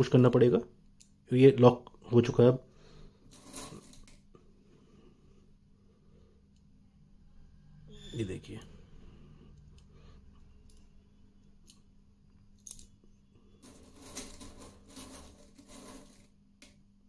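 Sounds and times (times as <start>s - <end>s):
fingers rustling through steel balls: 3.2s - 4.4s, 12.6s - 16.8s.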